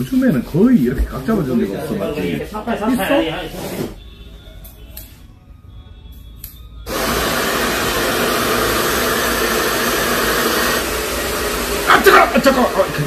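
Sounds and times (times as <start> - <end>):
hair dryer blowing: 6.9 - 13.0.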